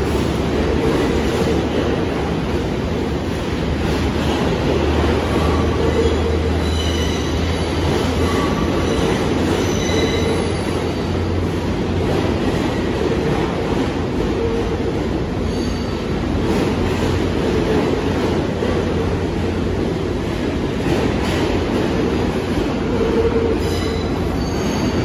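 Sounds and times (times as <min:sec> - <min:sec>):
subway train rumbling: 0:00.0 - 0:25.0
high-pitched wheel squeals: 0:05.3 - 0:07.6, 0:08.2 - 0:11.2, 0:23.2 - 0:25.0.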